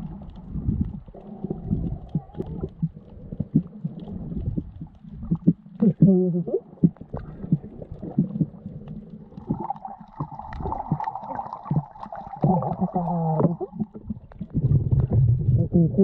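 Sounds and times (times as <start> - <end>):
muffled voice through snorkel: 1.4 - 2.9, 5.8 - 7.6, 12.3 - 13.8, 14.8 - 16.0.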